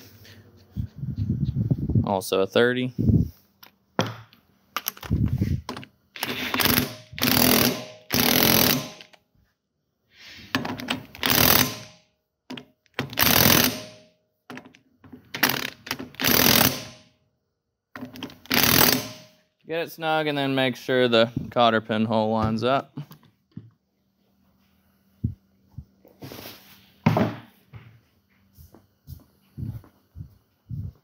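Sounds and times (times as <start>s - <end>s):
impact wrench bursts: 6.2s - 9.2s, 10.6s - 12.0s, 13.0s - 14.1s, 15.3s - 17.1s, 18.1s - 19.4s.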